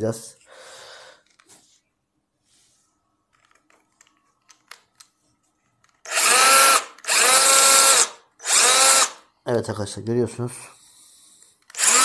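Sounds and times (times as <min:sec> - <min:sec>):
cordless drill motor whining: 0:06.1 - 0:09.2, 0:11.7 - 0:12.0.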